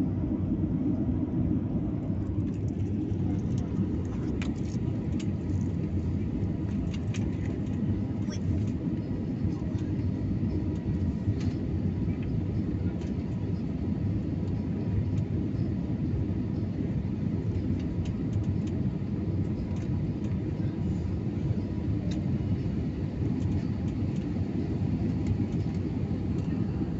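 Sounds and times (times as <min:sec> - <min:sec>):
airplane cabin engine rumble: 0:00.0 - 0:26.9.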